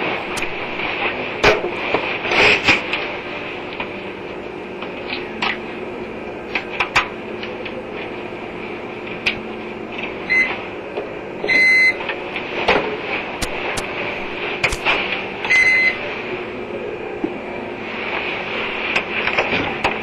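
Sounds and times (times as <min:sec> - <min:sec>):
steady mechanical hum: 0:00.0 - 0:20.0
short electronic beep: 0:15.5 - 0:16.0.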